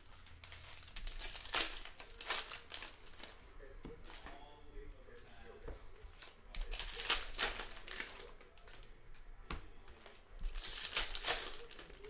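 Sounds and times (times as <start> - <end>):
plastic wrappers crinkling: 0.0 - 3.4, 6.2 - 8.9, 10.0 - 12.0.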